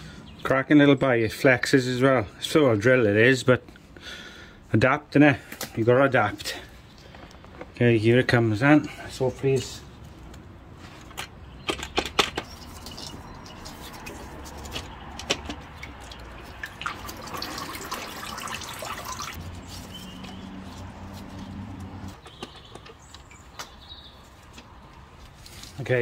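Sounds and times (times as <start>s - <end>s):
plastic parts clicking and knocking: 11.0s - 13.1s, 14.6s - 16.0s
liquid dripping and trickling: 12.4s - 14.2s, 15.6s - 19.4s
rush of liquid: 15.9s - 19.4s.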